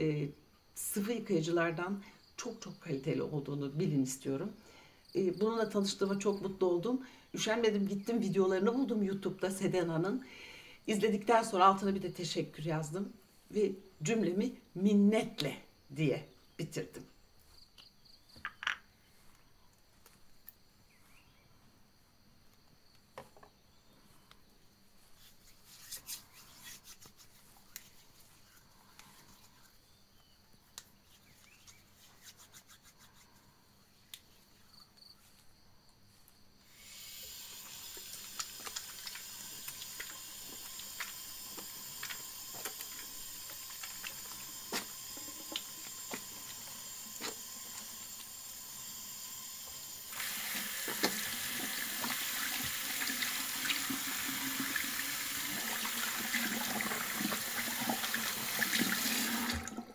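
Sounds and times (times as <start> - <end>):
soapy hands rubbing: 25.0 - 29.7, 31.0 - 33.6, 37.6 - 49.0
water running into sink: 37.2 - 59.9.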